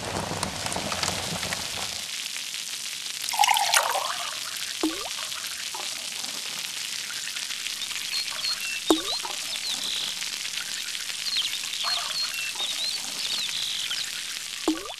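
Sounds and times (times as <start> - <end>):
running water: 3.2 - 14.9
sharp falling plop: 4.8 - 5.1, 8.9 - 9.2, 14.7 - 14.9
high bird chirps: 7.7 - 14.9.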